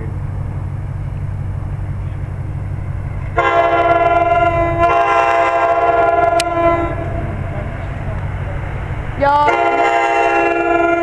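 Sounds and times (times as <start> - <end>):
steady low rumble: 0.0 - 11.0
locomotive air horn blast: 3.4 - 7.4, 9.2 - 11.0.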